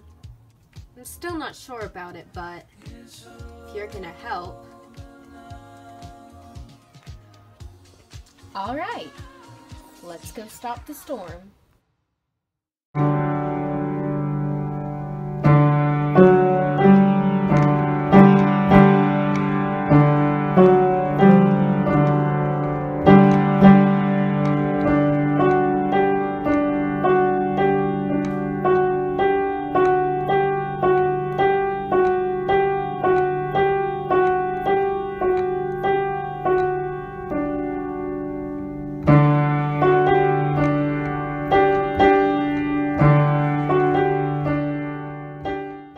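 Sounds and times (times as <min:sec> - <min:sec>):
piano music: 0:13.0 - 0:45.9.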